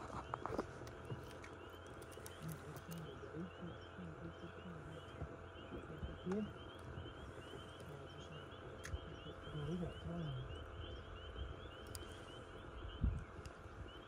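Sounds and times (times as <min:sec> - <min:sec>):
frogs peeping: 0:00.0 - 0:14.0
low murmur of voice: 0:02.0 - 0:11.6.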